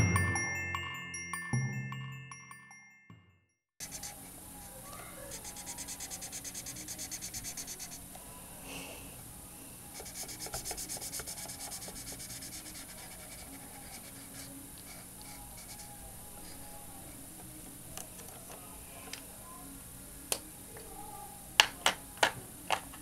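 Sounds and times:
marker colouring on paper: 3.8 - 8.1, 9.9 - 16.8.

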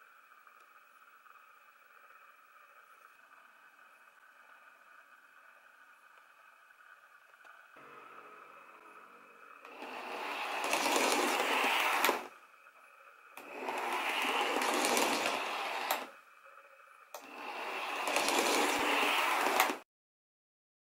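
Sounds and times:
model train motor whirring: 6.9 - 12.4, 13.3 - 16.2, 17.1 - 19.8.

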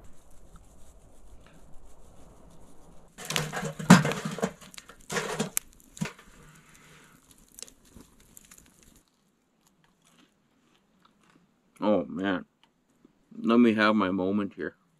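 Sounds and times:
wood fire crackling: 0.0 - 10.1
stick knocking and scraping wood: 3.2 - 6.5.

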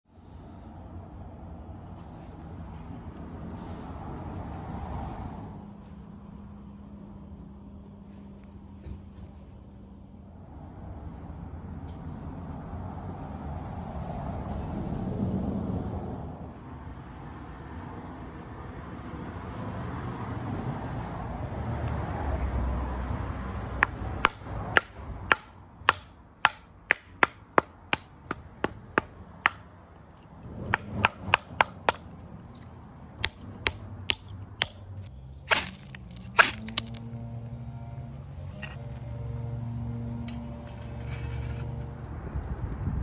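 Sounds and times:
baton knocking knife spine: 23.8 - 29.6, 30.6 - 32.2, 35.5 - 37.0
harsh scrapes: 35.5 - 37.0, 40.5 - 42.0.

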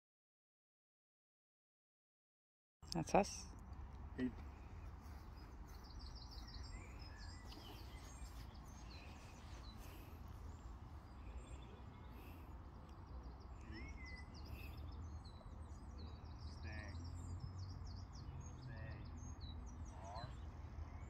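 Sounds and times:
bird chirps and trills: 4.5 - 21.0.

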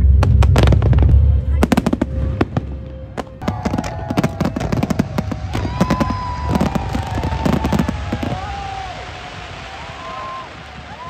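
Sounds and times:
fireworks bursting: 0.0 - 11.0.

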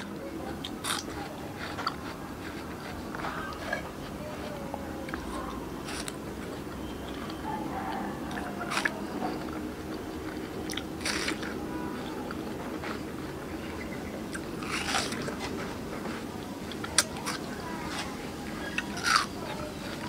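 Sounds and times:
juicy chewing: 0.0 - 20.0
crisp bites of watermelon: 10.7 - 11.6, 14.3 - 15.5.

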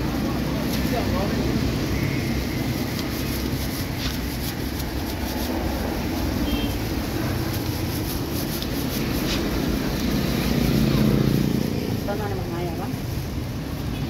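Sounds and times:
gloved hands clicking and rustling: 2.7 - 6.4, 7.1 - 9.8.

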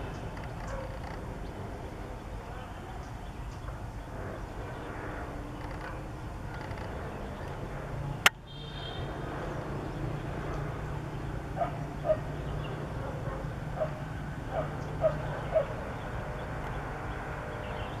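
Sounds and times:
steady low hum: 0.0 - 18.0
distant dog barking: 0.6 - 1.2, 11.5 - 16.1.

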